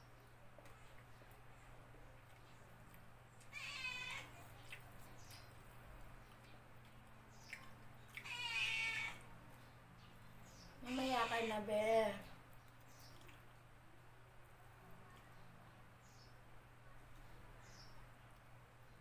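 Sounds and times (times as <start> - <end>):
cat meowing: 3.5 - 4.4, 8.2 - 9.2.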